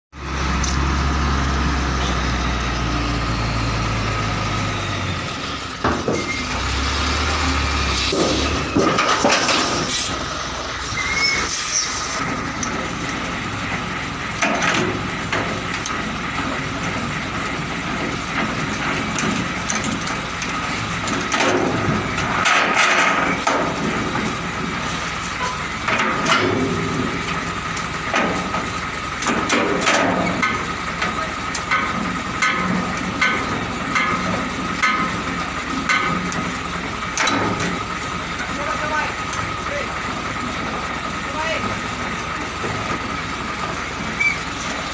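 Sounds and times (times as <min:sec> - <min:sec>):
truck engine running: 0:00.1 - 0:44.9
metal clanks and knocks: 0:05.8 - 0:06.6, 0:08.0 - 0:10.2, 0:12.2 - 0:39.6.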